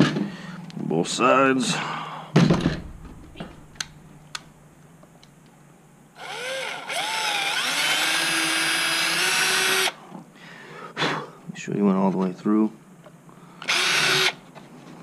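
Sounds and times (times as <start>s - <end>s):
cordless drill whining: 6.2s - 10.0s, 13.6s - 14.4s.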